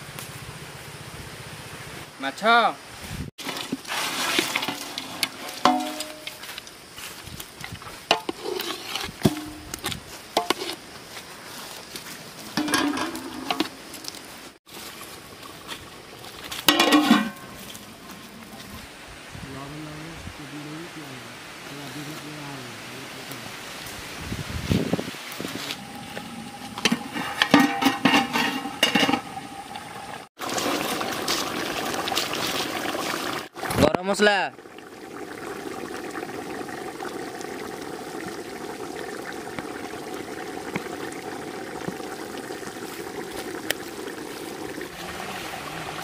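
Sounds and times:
metal ladle stirring in a pot: 3.4s - 6.4s, 8.1s - 9.6s, 26.7s - 29.4s
metal lid clanking on pot: 4.5s - 6.4s, 12.6s - 13.8s, 16.7s - 17.6s, 26.8s - 29.4s
steaming pot hissing: 24.9s - 33.8s, 34.7s - 46.0s.

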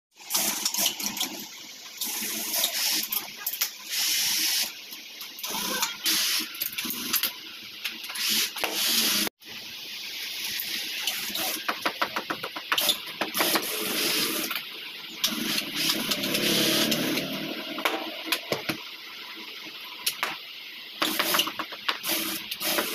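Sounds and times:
industrial sewing machine stitching: 15.2s - 17.7s.

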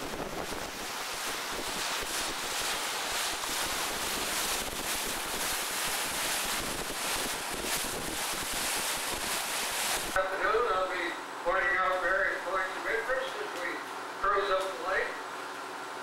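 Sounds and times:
wind buffeting microphone: 0.0s - 2.7s, 3.3s - 9.4s
water rushing along hull: 0.0s - 11.1s.

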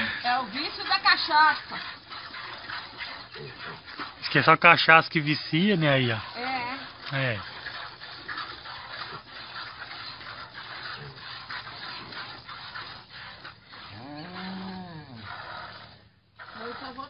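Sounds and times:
piglet suckling: 0.0s - 17.0s
cow mooing: 13.7s - 15.9s.

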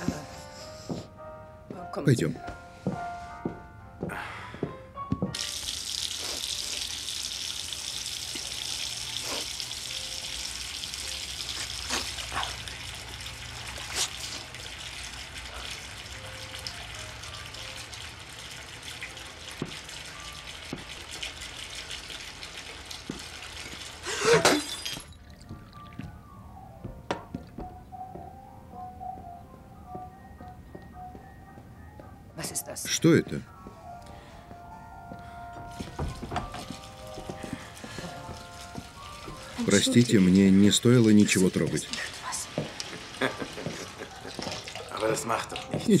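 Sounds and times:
tap water running into basin: 5.3s - 26.1s, 35.7s - 46.0s.

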